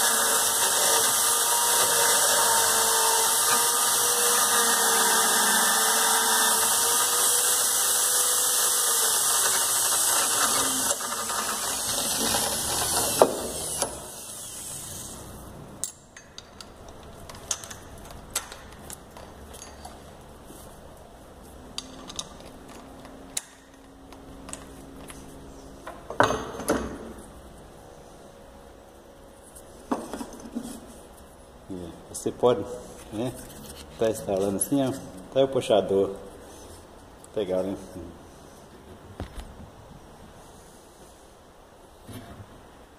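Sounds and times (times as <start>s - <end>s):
electric drill running: 0.0s - 15.1s.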